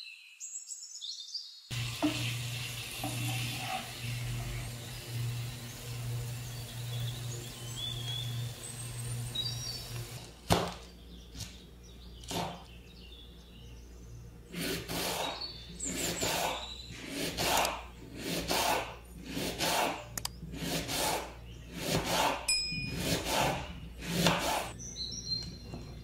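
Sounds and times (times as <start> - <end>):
birdsong chirping: 0.0 - 18.2, 19.0 - 26.0
liver sizzling in a pan: 1.7 - 9.0
low hum: 22.5 - 24.0.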